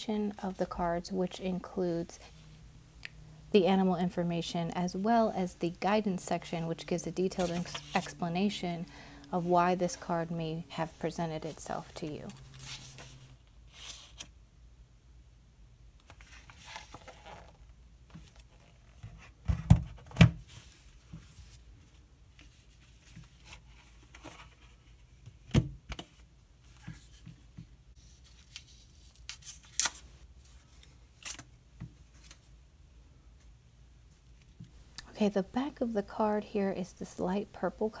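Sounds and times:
paper rustling: 11.4 - 14.3, 28.0 - 32.5
paper band tearing: 28.4 - 30.1.

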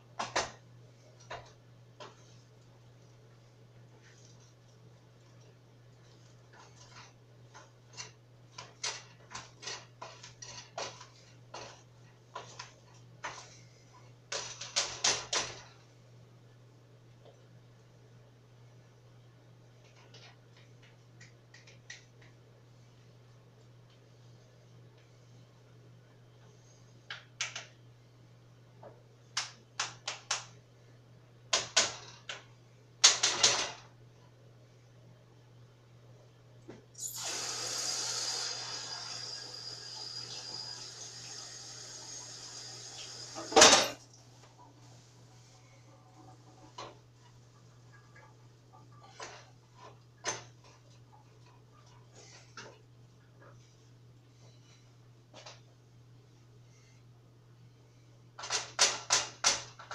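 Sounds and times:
faint low hum: 0.0 - 58.8
kitchen things clicking and knocking: 58.4 - 59.9.

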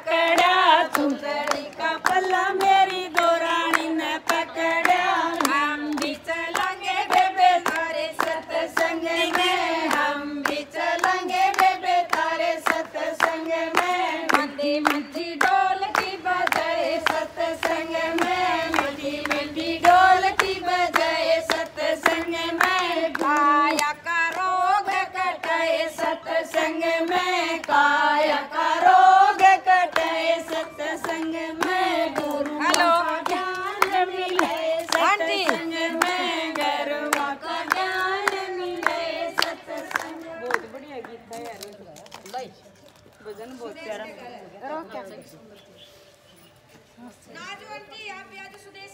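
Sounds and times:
women singing together: 0.0 - 40.8
hands clapping: 0.1 - 27.8, 29.4 - 42.5.

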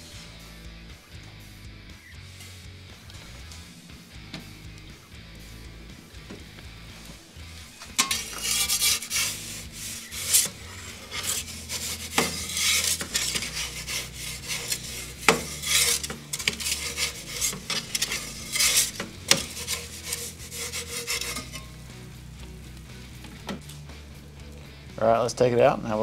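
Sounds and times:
metal peel scraping on stone: 7.7 - 22.0.

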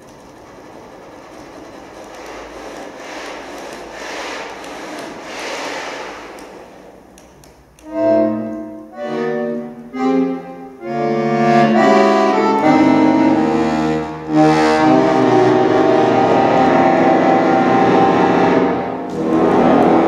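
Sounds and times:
accordion chords: 7.8 - 20.0.

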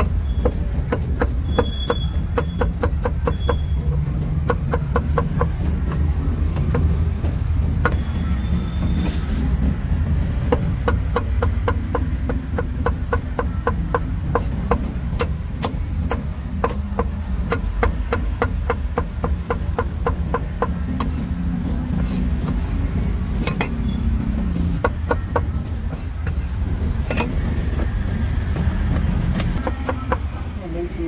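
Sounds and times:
cleaver chopping on wooden block: 0.0 - 3.6, 4.4 - 6.9, 10.4 - 21.1.

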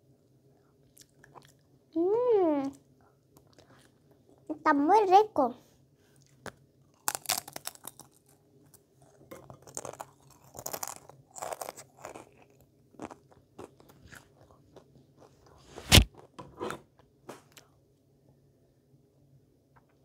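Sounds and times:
potato chips crunching and chewing: 6.2 - 16.4
sharp thump: 15.8 - 16.1.

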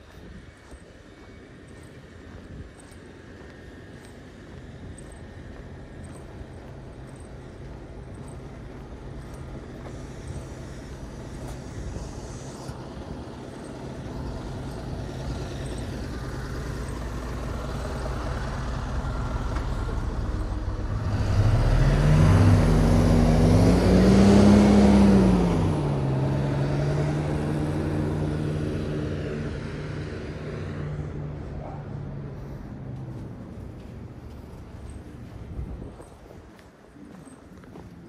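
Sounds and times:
vehicle passing by: 9.2 - 35.8.

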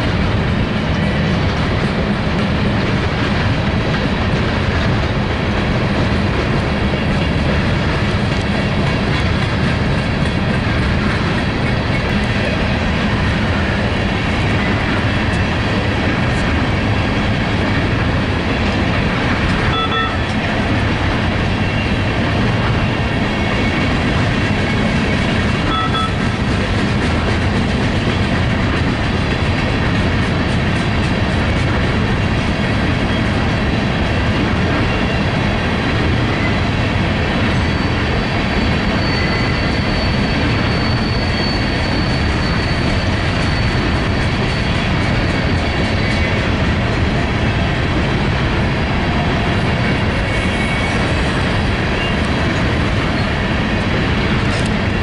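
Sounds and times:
freight train rolling on rails: 0.0 - 55.0
high wheel squeaks: 37.4 - 46.3.

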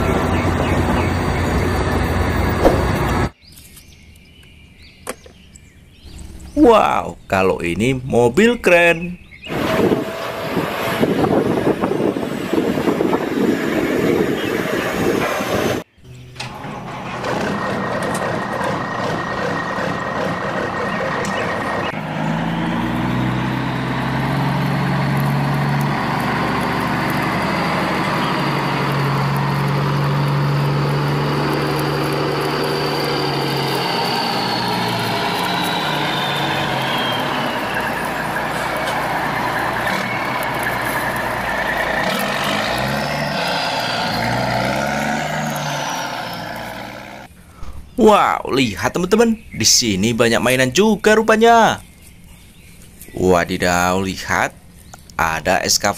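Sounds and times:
heavy truck engine running: 0.0 - 3.4, 6.1 - 8.6, 9.2 - 47.4.

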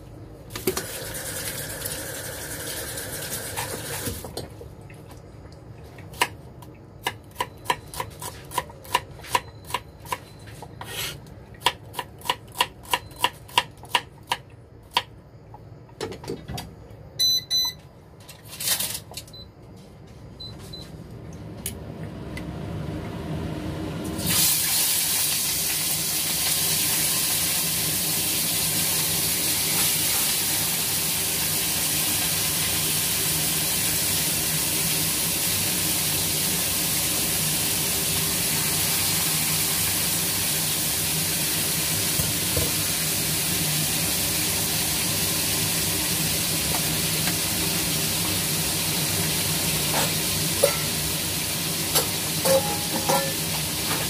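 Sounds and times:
fish sizzling in hot oil: 24.2 - 54.0.

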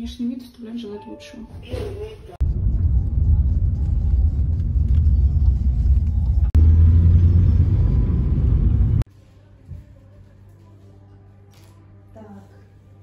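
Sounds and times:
car driving rumble from inside: 2.4 - 9.1.

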